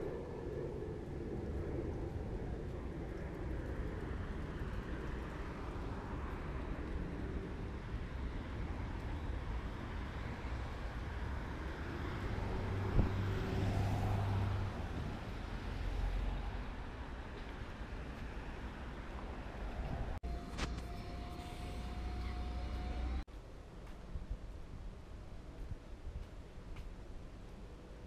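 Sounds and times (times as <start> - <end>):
cars passing on wet road: 3.6 - 23.2.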